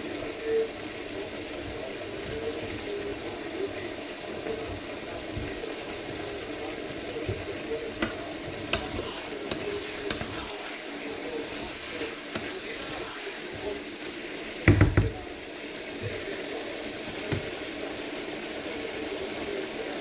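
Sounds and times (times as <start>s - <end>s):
food sizzling in frying pan: 0.0s - 20.0s
spatula tapping pan: 4.3s - 13.8s, 14.6s - 15.3s, 17.1s - 17.7s.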